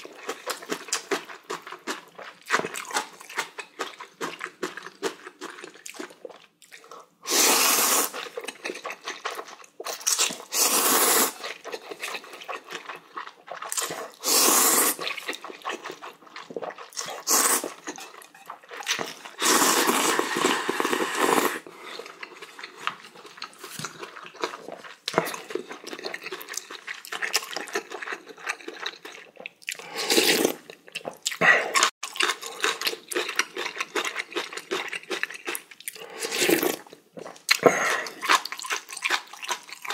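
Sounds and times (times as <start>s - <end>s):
wet chewing: 0.0s - 7.1s, 7.8s - 39.9s
person slurping noodles: 7.2s - 8.4s, 10.2s - 11.7s, 13.6s - 15.8s, 16.6s - 22.6s, 29.7s - 30.6s, 35.9s - 38.4s.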